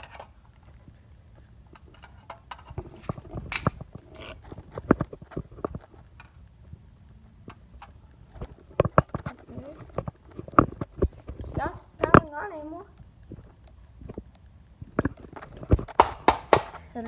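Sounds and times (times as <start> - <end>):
hammer knocking on plastic casing: 15.9 - 16.8.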